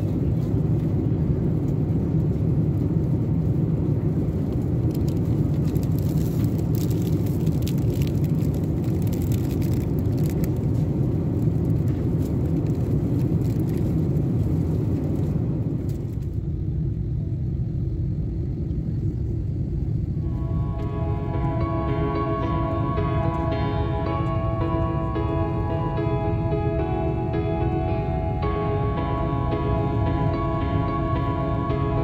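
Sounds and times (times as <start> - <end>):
airplane cabin roar: 0.0 - 32.0
plastic wrapper crinkling: 4.9 - 10.8.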